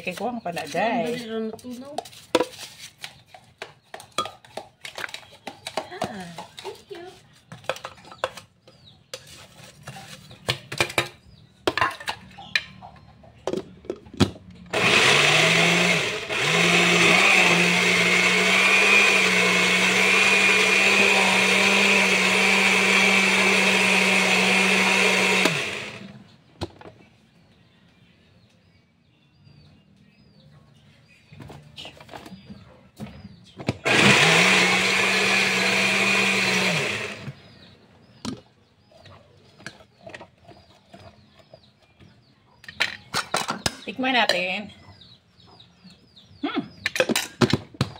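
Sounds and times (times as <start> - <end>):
blender motor blending ice: 14.7 - 26.2, 33.8 - 37.6.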